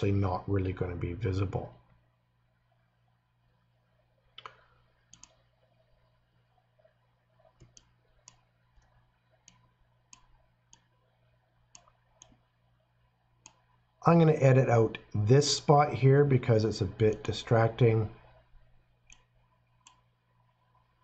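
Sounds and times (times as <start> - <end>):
low steady hum: 0.0 - 21.0
computer mouse clicks: 4.3 - 6.2, 7.4 - 11.1, 11.7 - 12.5, 13.4 - 13.7, 19.0 - 20.9.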